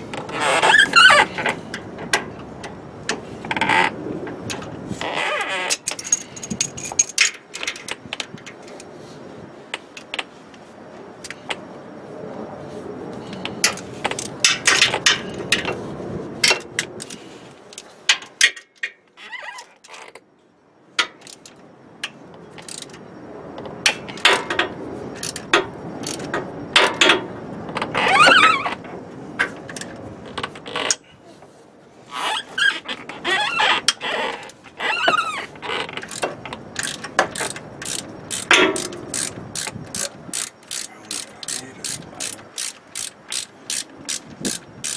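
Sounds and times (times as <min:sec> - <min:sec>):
short squeaks: 0:00.1 - 0:01.6, 0:04.9 - 0:07.1, 0:19.2 - 0:20.2, 0:27.8 - 0:28.8, 0:32.1 - 0:42.4
metal clinks: 0:05.8 - 0:07.7
ratchet wrench clicking: 0:22.6 - 0:23.0, 0:25.2 - 0:27.1, 0:36.0 - 0:44.9.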